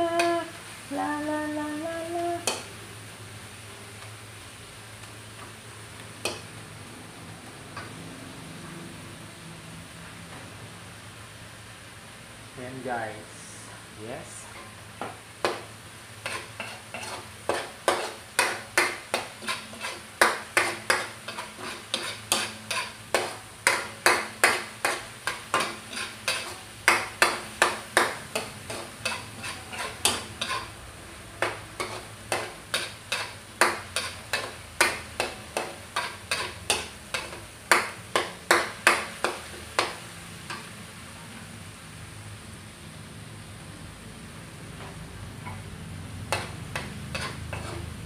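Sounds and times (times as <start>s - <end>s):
metal spatula scraping a wok: 16.2s - 30.8s, 31.4s - 37.5s, 46.3s - 48.0s.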